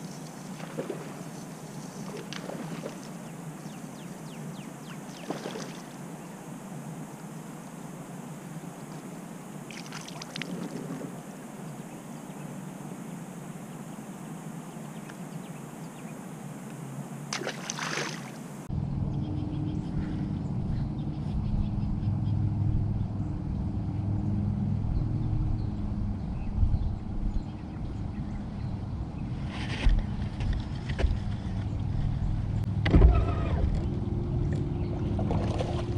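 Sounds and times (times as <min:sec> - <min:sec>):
open-air hiss: 0:00.0 - 0:18.7
boat motor humming: 0:30.0 - 0:35.9.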